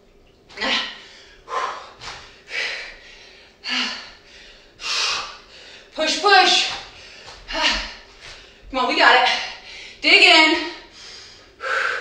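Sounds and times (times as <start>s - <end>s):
woman breathing forcefully: 1.0s - 6.0s, 6.8s - 10.0s, 10.8s - 12.0s.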